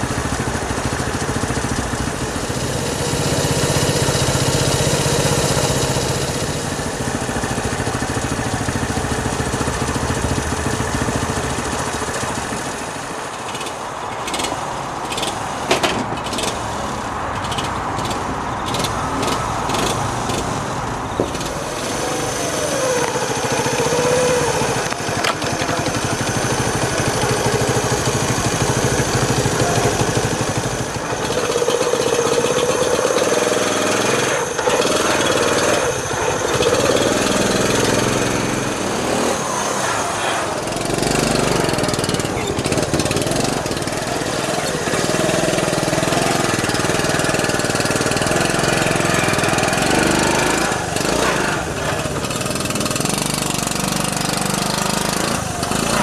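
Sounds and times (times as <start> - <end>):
motorcycle engine running: 0.0 - 56.0
sharp clicks: 17.4 - 20.6.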